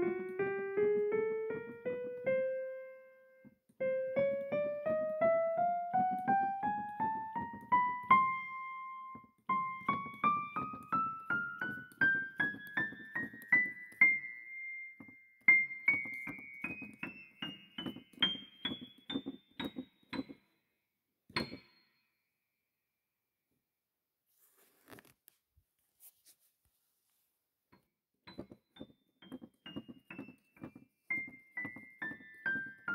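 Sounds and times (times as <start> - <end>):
piano notes climbing in pitch: 0.0 - 20.4, 28.3 - 32.9.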